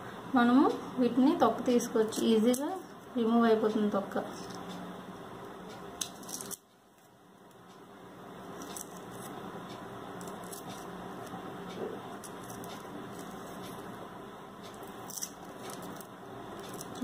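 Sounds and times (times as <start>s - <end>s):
knife peeling wet onion skin: 6.0s - 6.6s, 14.7s - 17.0s.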